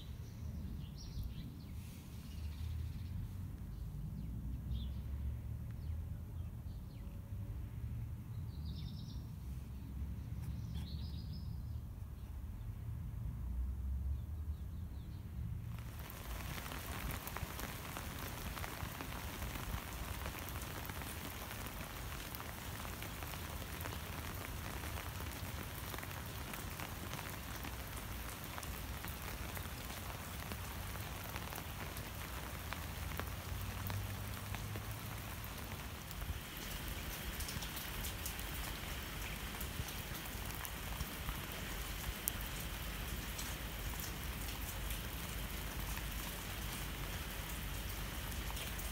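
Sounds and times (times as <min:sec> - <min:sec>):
rain falling: 0:15.5 - 0:48.9.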